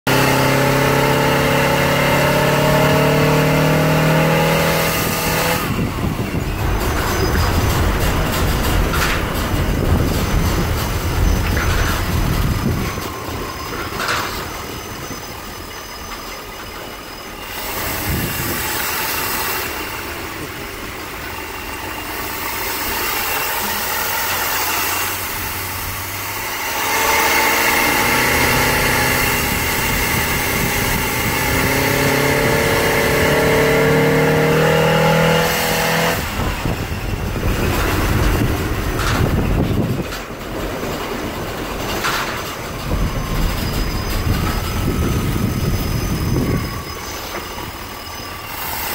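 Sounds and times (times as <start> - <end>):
bus engine accelerating: 0.0 - 48.9
body and windows rattling: 5.8 - 14.6.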